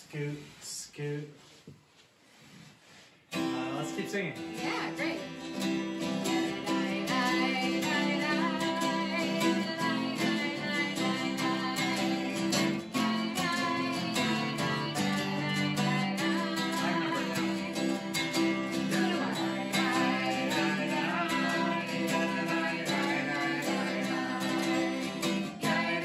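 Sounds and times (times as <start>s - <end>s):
acoustic guitars strummed: 3.3s - 26.0s
person singing: 4.5s - 26.0s.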